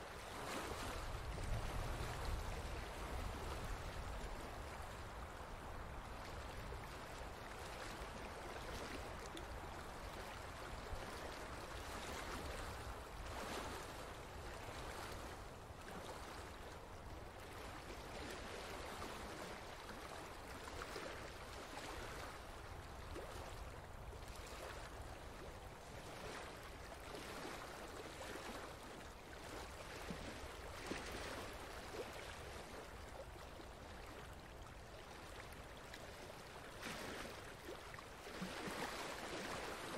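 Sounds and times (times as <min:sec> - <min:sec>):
flowing water: 0:00.0 - 0:39.9.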